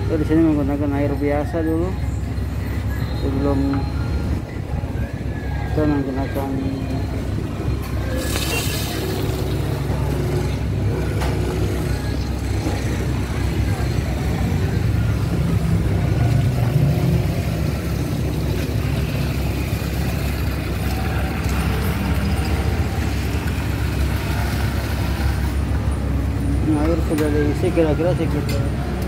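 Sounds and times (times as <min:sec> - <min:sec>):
hose water filling plastic tank: 0:08.1 - 0:09.5.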